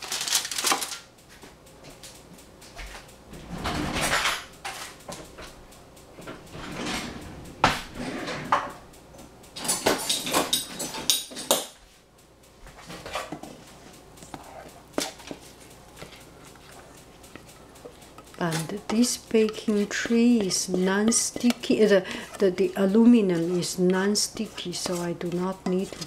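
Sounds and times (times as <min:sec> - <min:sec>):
aluminium foil crinkling: 0:00.0 - 0:01.1
dishes clattering: 0:09.6 - 0:11.7.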